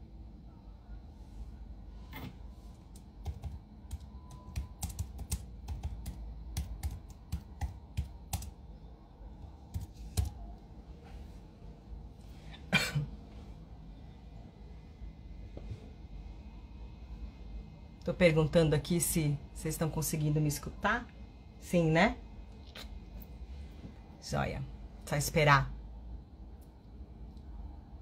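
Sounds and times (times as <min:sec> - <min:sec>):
keyboard typing: 0:02.9 - 0:08.6, 0:09.7 - 0:10.4.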